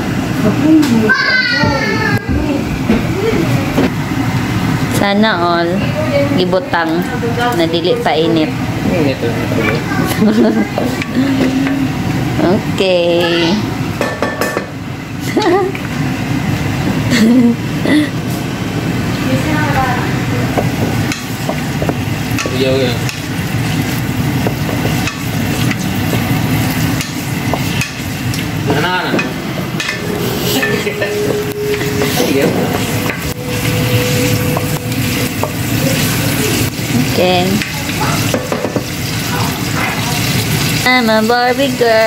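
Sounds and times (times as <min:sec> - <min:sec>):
meat sizzling in pan: 0:20.7 - 0:28.8, 0:33.5 - 0:42.0.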